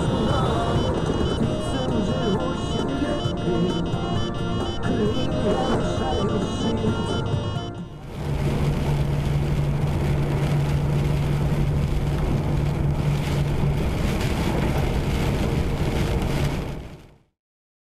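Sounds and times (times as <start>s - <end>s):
tyre and rain noise: 0.0s - 4.6s, 8.0s - 17.3s
engine hum: 0.0s - 17.2s.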